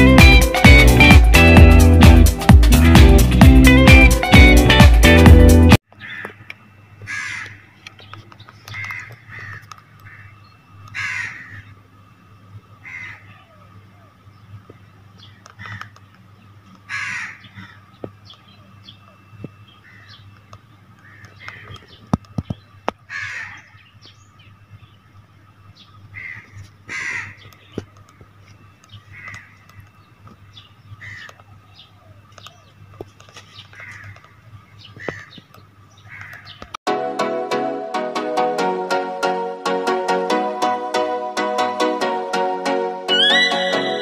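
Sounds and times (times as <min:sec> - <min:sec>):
loud music: 0:00.0 - 0:05.8, 0:36.9 - 0:44.0
crows cawing: 0:05.9 - 0:07.8, 0:08.6 - 0:11.8, 0:12.8 - 0:13.5, 0:15.4 - 0:16.0, 0:16.9 - 0:17.9, 0:19.8 - 0:20.2, 0:21.0 - 0:22.0, 0:23.1 - 0:23.8, 0:26.1 - 0:27.5, 0:29.1 - 0:29.7, 0:31.0 - 0:31.4, 0:33.7 - 0:34.3, 0:35.0 - 0:35.5, 0:36.1 - 0:36.6.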